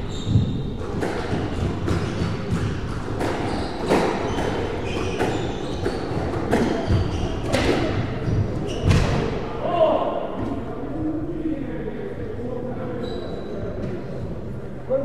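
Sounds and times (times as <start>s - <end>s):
shoe squeaks on wooden floor: 0.0s - 0.8s, 3.4s - 9.1s, 13.0s - 13.6s.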